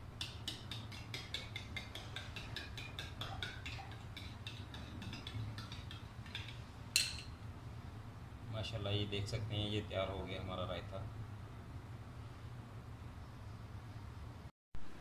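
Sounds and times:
metal spoon clinking in ceramic bowl: 1.4s - 7.4s.

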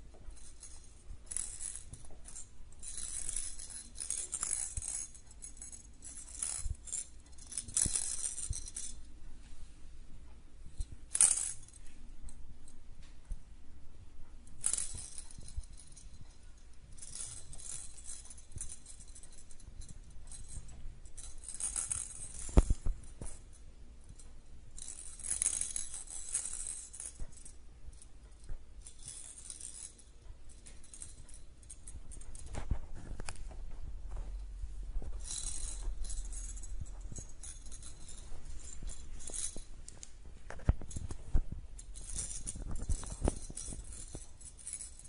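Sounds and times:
cat toy jingling and rattling: 0.0s - 9.1s, 14.5s - 45.0s.

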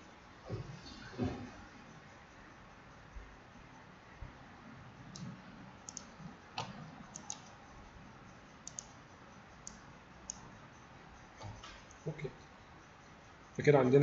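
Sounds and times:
faint computer mouse clicks: 5.9s - 7.5s, 8.6s - 8.9s.

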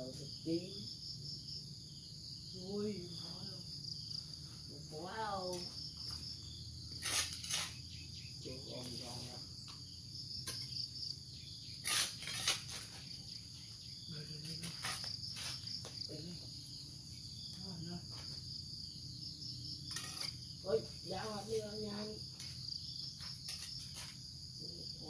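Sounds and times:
crickets droning: 0.0s - 25.0s
hand tool chopping into soil: 11.8s - 12.9s.

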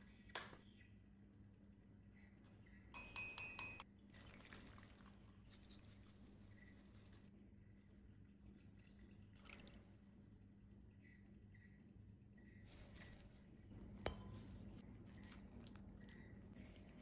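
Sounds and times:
bamboo scoop clinking on ceramic bowl: 3.0s - 3.8s
water pouring: 4.1s - 5.5s, 9.3s - 10.0s
bamboo whisk brushing in bowl: 5.4s - 7.3s.

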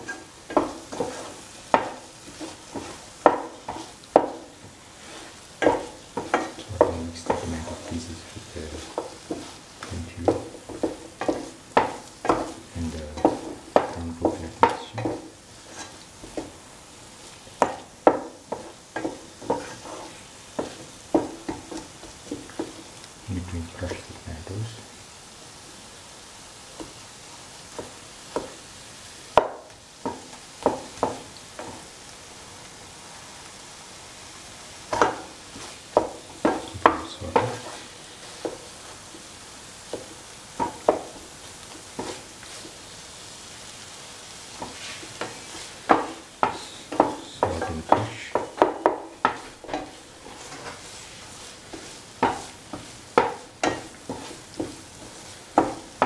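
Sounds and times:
spatula scraping a pan: 0.0s - 23.0s, 34.9s - 43.0s, 44.3s - 56.0s
low sizzle: 0.0s - 56.0s.

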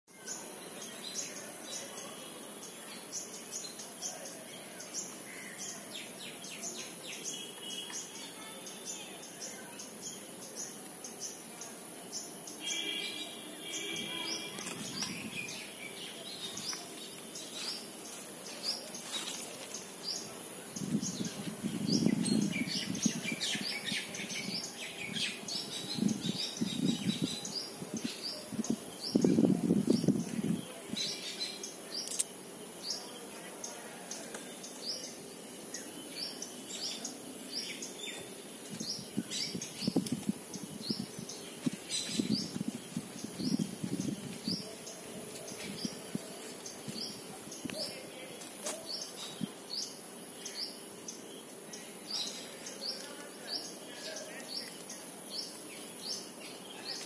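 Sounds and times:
small birds chirping: 0.1s - 57.0s
rustling and scraping in branches: 13.8s - 21.7s.

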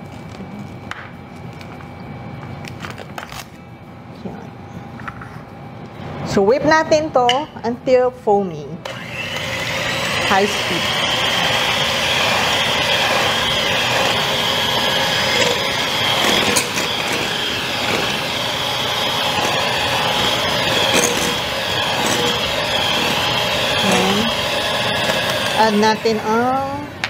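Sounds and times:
electric mixer whipping egg whites: 8.8s - 26.8s.

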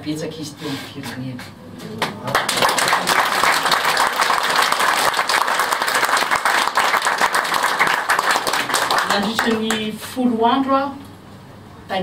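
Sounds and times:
audience applauding: 2.0s - 9.9s.

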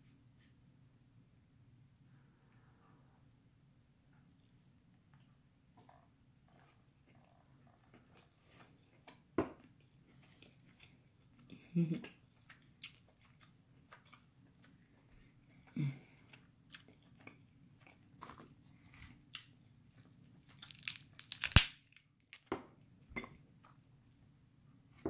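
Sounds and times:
close-up chewing: 6.5s - 18.6s, 19.3s - 21.6s
crab legs cracking: 20.4s - 22.5s.

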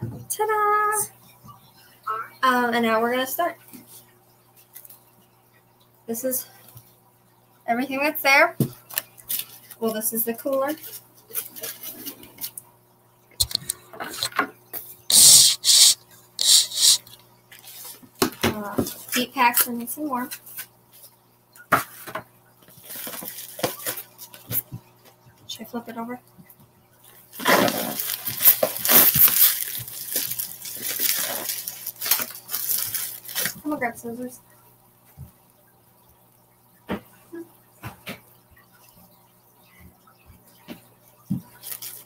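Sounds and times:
plastic packaging crinkling: 22.8s - 24.5s, 27.2s - 33.8s, 41.6s - 42.0s
foam scraping: 27.4s - 33.4s.

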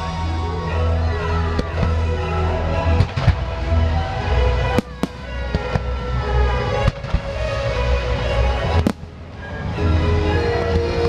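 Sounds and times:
fireworks show music: 0.0s - 11.0s
fireworks bursting: 4.7s - 6.2s, 8.8s - 9.6s.

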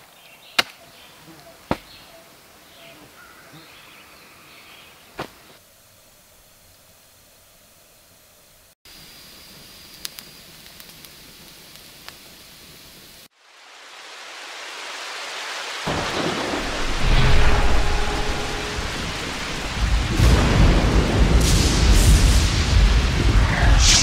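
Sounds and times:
rain hiss: 3.7s - 24.0s
deep thunder rumbling: 15.9s - 24.0s
rushing roar: 15.9s - 24.0s.

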